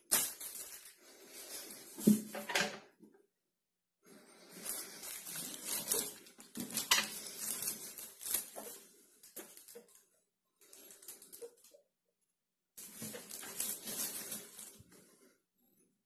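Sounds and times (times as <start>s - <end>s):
plastic film crinkling: 0.0s - 1.6s, 4.4s - 10.0s, 12.8s - 14.9s.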